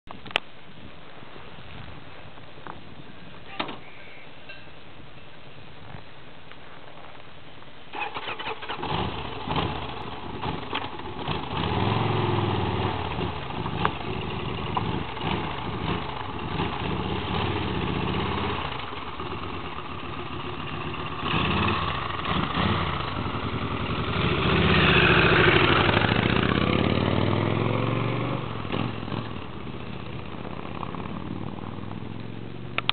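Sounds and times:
motorcycle engine revving: 8.0s - 32.9s.

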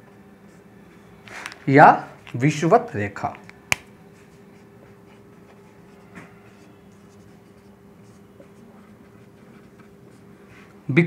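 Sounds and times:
marker scratching on whiteboard: 4.2s - 10.6s.

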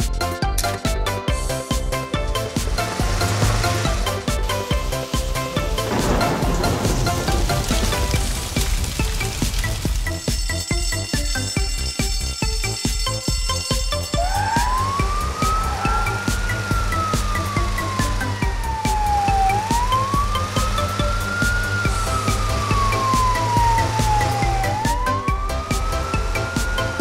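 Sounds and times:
background music with steady beat: 0.0s - 27.0s
fire engine siren wailing: 2.3s - 27.0s.

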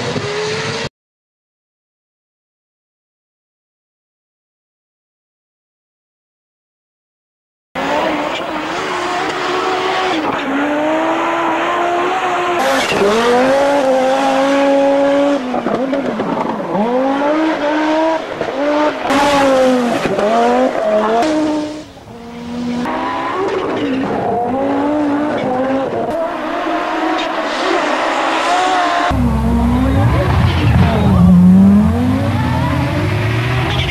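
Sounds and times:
rally car engine revving: 7.8s - 33.9s.

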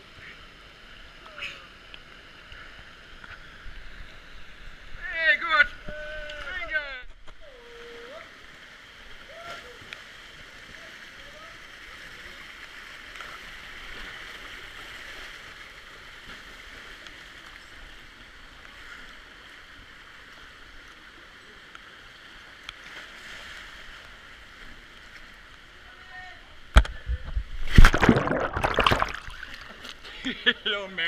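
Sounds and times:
flowing water rushing: 27.4s - 30.1s
loud splash into water: 27.6s - 29.7s.

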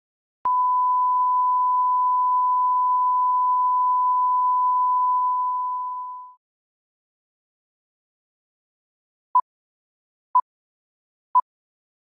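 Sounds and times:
steady test tone beep: 0.5s - 6.4s.

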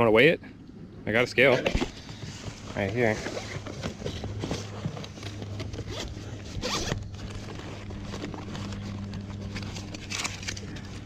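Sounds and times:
steady low hum: 0.0s - 11.0s
zipper being pulled: 2.4s - 11.0s.

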